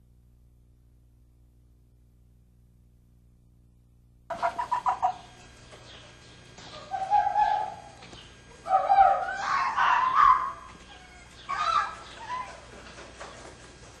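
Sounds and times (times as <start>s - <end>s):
foxes high-pitched cries: 6.7s - 12.8s.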